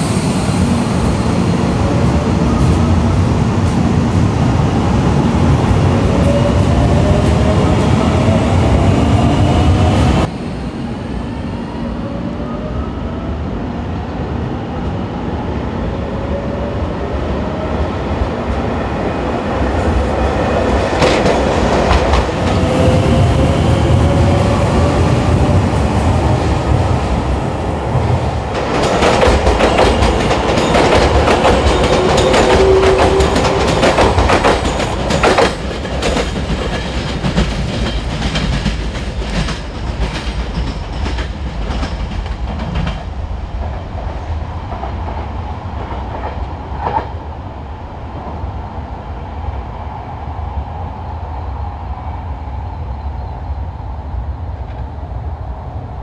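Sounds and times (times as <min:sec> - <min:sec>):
train wheels clacking on rails: 0:20.6 - 0:23.2, 0:28.4 - 0:47.2.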